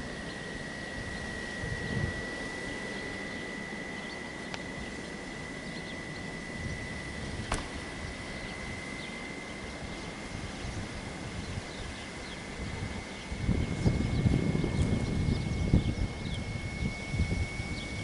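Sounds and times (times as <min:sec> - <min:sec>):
thin high whine: 0:00.0 - 0:18.0
sharp click: 0:07.4 - 0:07.8.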